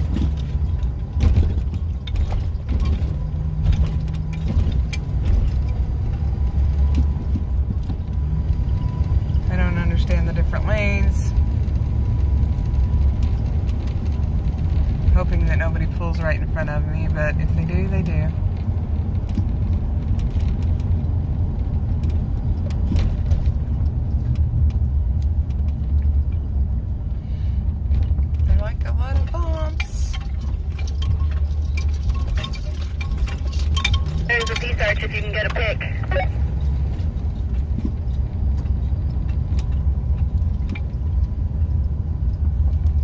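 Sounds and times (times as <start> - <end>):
van engine and road noise: 0.0 - 43.0
light clicks and rattles: 27.8 - 35.8.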